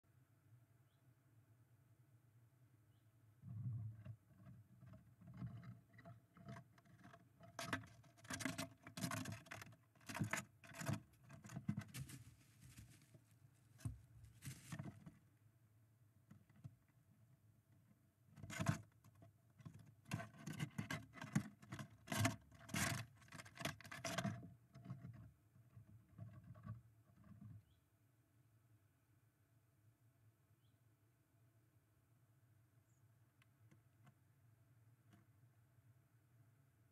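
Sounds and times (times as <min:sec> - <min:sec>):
squirrel claws scratching wood: 0:04.0 - 0:13.2, 0:18.3 - 0:27.6.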